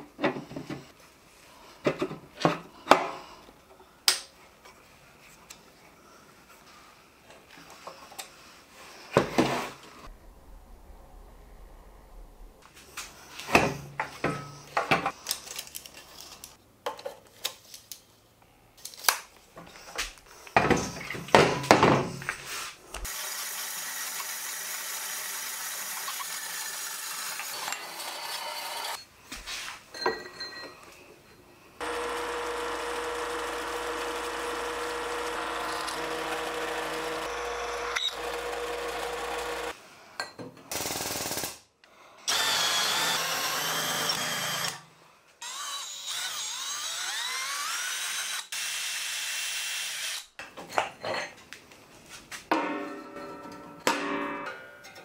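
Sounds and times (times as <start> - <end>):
band saw cutting steel: 23.1 - 29.0, 31.8 - 39.8, 42.3 - 44.8, 45.4 - 50.3
drill press humming: 31.8 - 39.7, 42.3 - 44.8
metal clanks and knocks: 52.5 - 55.0.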